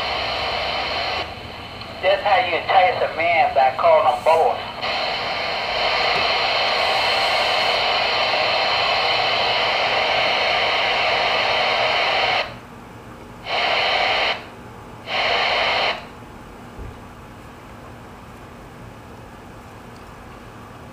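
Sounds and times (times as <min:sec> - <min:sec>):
radio static hiss: 0:00.0 - 0:12.6, 0:13.4 - 0:16.2.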